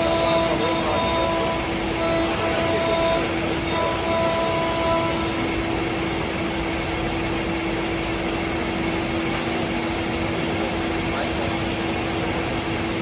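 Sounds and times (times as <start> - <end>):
router spindle whining: 0.0 - 6.6.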